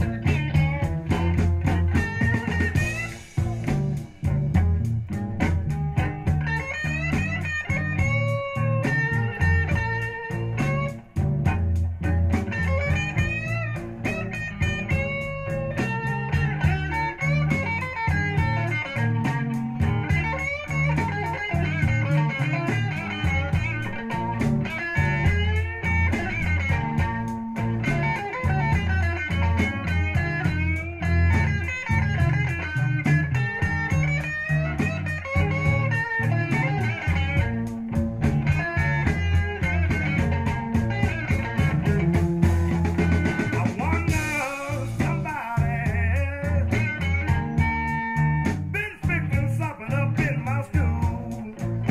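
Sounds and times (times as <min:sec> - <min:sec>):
rock music from speakers: 0:00.0 - 0:51.9.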